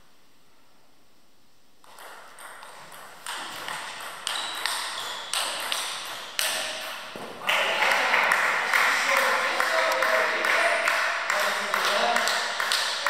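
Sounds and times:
ping pong ball bouncing on table: 1.8s - 7.4s
ping pong ball hitting rackets: 1.8s - 7.4s, 9.1s - 13.0s.

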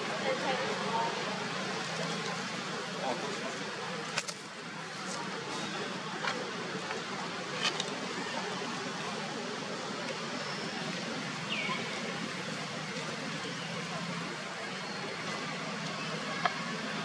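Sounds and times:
distant road traffic hum: 0.0s - 17.0s.

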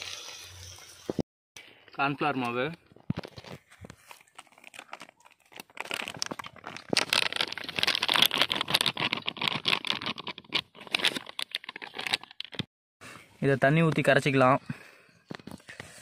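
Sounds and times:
plastic packet crinkling: 3.2s - 12.7s.

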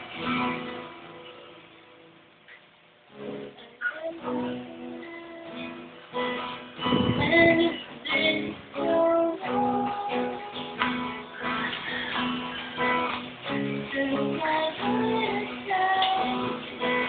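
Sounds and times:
acoustic guitar strummed and picked: 0.0s - 17.0s
young woman singing: 3.7s - 6.0s, 6.9s - 11.3s, 13.5s - 17.0s.

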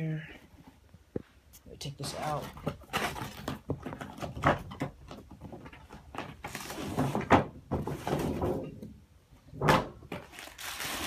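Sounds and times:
rubbing and scraping cardboard box: 5.6s - 8.7s, 10.2s - 11.0s.

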